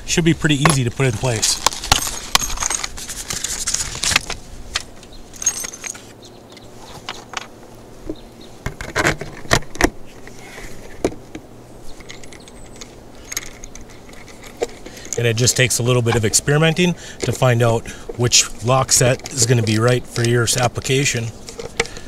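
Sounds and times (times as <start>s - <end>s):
metallic clicks and jingles: 0.6s - 3.0s, 5.3s - 6.2s, 12.0s - 16.3s.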